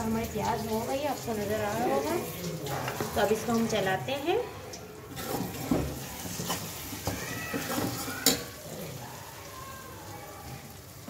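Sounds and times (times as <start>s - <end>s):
onions sizzling in hot oil: 0.0s - 11.0s
metal spoon scraping and clinking pan: 5.2s - 8.6s.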